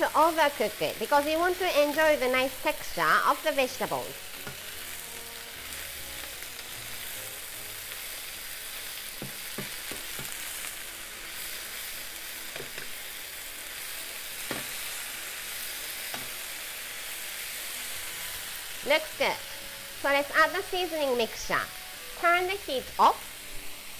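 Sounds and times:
food sizzling in frying pan: 0.0 - 23.9
spatula knocking against pan: 9.2 - 10.4.

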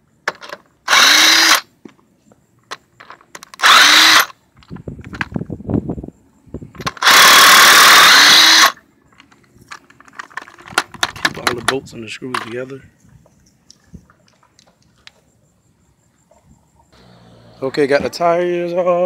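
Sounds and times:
power tool whining in bursts: 0.9 - 1.7, 3.6 - 4.4, 6.8 - 8.8, 17.0 - 18.0
metal clicks and rattling: 9.1 - 12.8.

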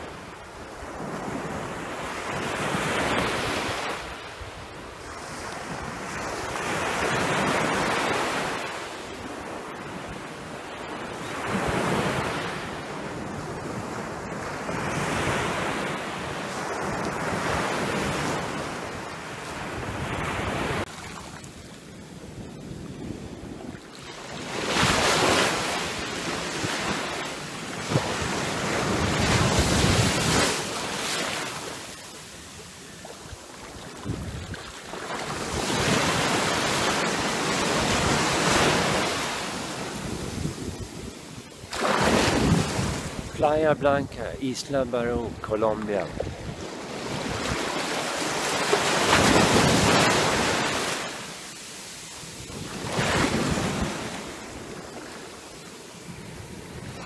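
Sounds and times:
sea waves breaking: 0.6 - 21.8, 22.4 - 57.0
wind buffeting microphone: 27.8 - 30.7, 33.2 - 39.0, 39.6 - 41.4, 42.0 - 44.4, 46.0 - 48.0.

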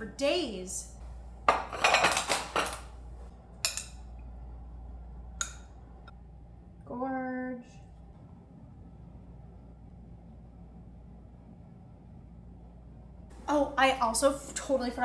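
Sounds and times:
plates and forks clinking on table: 1.5 - 2.9
steady pitched hum: 2.9 - 15.0.

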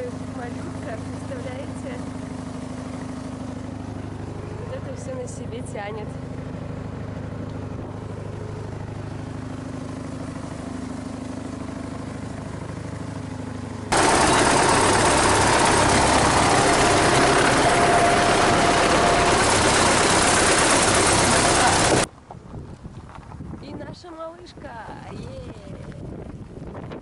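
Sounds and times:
boat engine humming: 0.0 - 22.3
loud rushing noise: 13.9 - 22.1.

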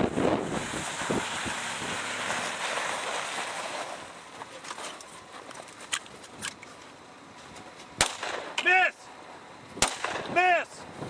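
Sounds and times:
wind blowing across microphone: 0.0 - 2.5, 9.6 - 11.0.

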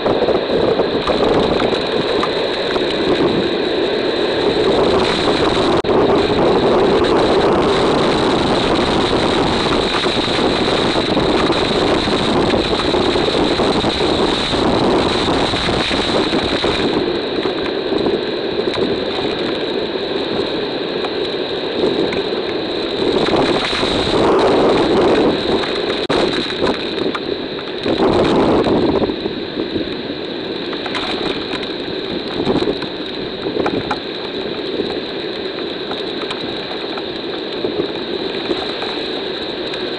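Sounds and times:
heavy rain: 0.0 - 39.9
strong wind buffeting microphone: 0.0 - 39.9.

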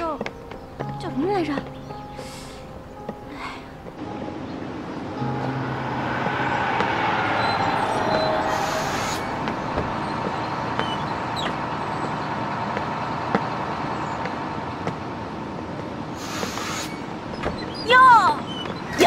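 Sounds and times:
bus engine running: 0.0 - 19.0
street traffic: 0.0 - 19.0
air brakes hissing: 2.1 - 2.8, 8.0 - 10.2, 16.2 - 17.9.

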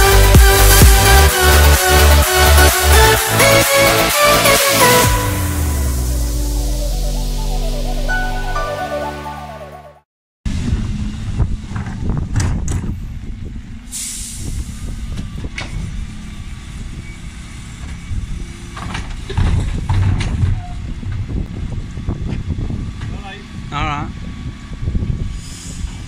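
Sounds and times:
diesel engine running: 0.0 - 8.4
air brakes hissing: 13.9 - 14.9, 25.3 - 26.0.

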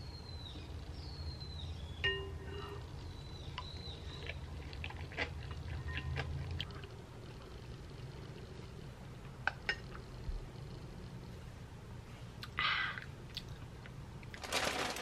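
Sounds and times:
birds chirping: 0.0 - 4.8.

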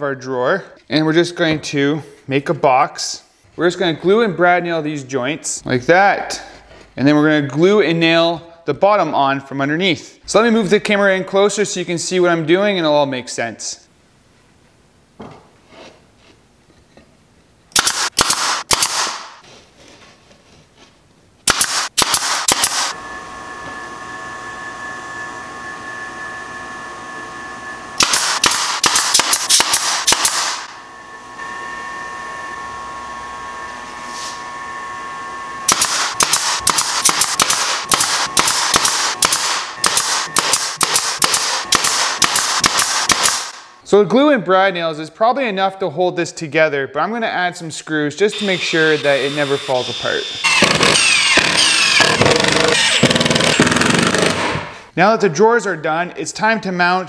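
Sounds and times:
nail gun firing: 17.7 - 19.4, 21.4 - 22.9, 28.0 - 30.7, 35.7 - 43.6, 50.5 - 54.7
air compressor hum: 21.5 - 43.7, 48.3 - 54.9.

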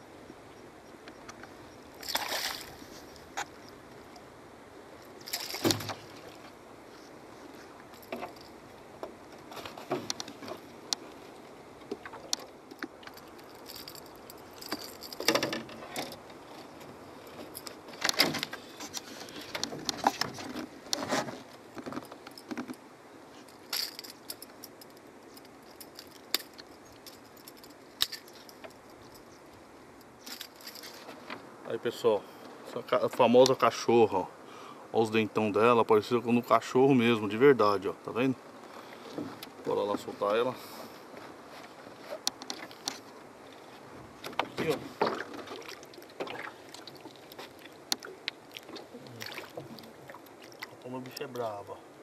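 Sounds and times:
knocks and splashes: 2.0 - 3.5, 5.2 - 6.5, 44.2 - 50.8
metallic clinks of hooks: 13.1 - 15.6, 23.5 - 29.3.

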